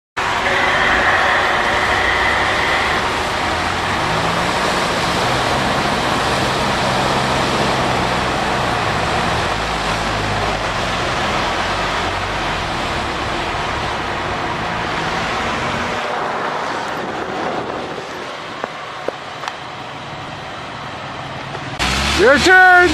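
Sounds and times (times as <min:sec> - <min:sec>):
engine working hard: 0:00.2 - 0:22.9
mud and water splashing: 0:02.0 - 0:18.6.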